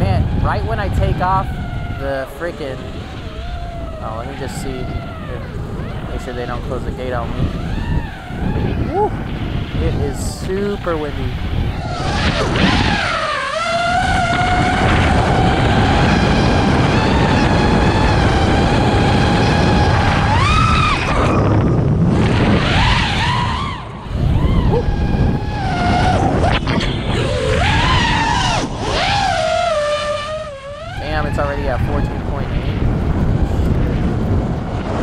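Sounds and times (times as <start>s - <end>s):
quadcopter motors whining: 0.0s - 35.0s
wind rumble on microphone: 0.0s - 35.0s.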